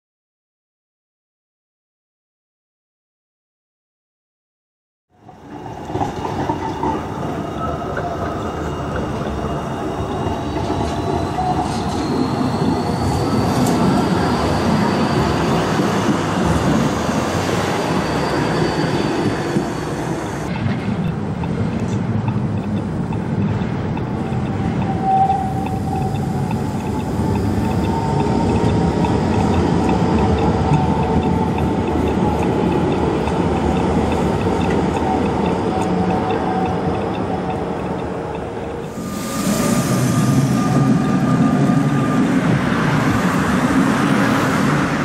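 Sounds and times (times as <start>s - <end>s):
tram wheels rumbling on rails: 5.2s - 45.0s
high whine: 24.2s - 44.8s.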